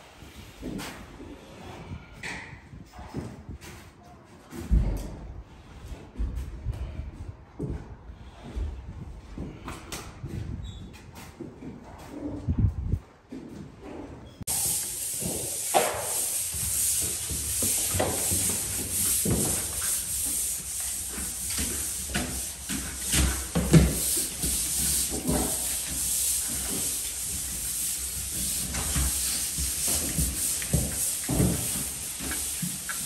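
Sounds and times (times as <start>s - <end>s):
sandpaper scraping drywall: 14.5s - 33.0s.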